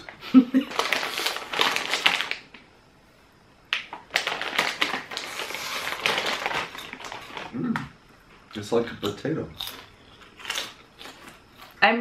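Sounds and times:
crisp packet crinkling: 0:00.0 - 0:02.6, 0:03.8 - 0:07.5.

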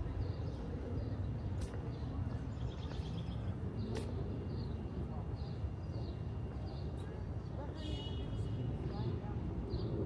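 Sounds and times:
small birds chirping: 0:00.0 - 0:07.9
distant city rumble: 0:00.0 - 0:10.0.

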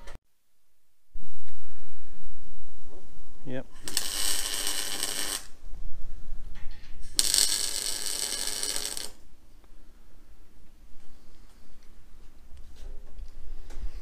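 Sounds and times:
welder arc crackling: 0:03.8 - 0:05.6, 0:07.0 - 0:09.2.

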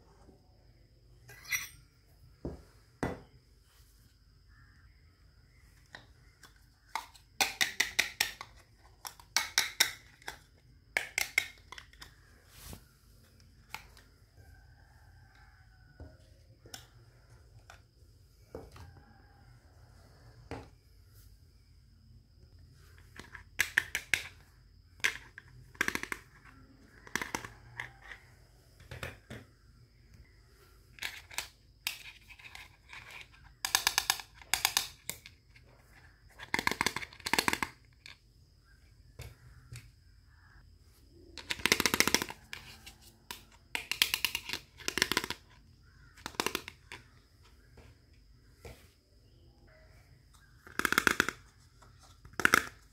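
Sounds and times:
plastic toy dishes clattering: 0:06.4 - 0:12.2, 0:23.0 - 0:28.2, 0:31.0 - 0:38.2, 0:41.4 - 0:47.2, 0:50.6 - 0:52.9.

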